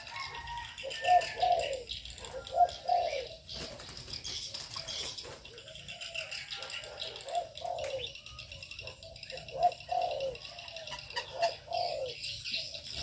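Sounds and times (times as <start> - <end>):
doves cooing: 0.0 - 13.0
small birds chirping: 0.0 - 13.0.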